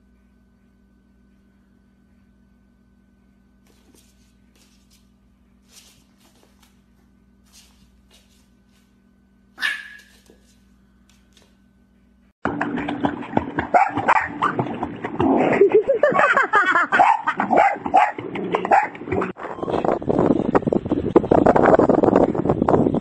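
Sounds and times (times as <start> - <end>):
dog barking: 9.6 - 10.3, 13.7 - 14.5, 16.9 - 19.0
water splashing: 12.5 - 16.3.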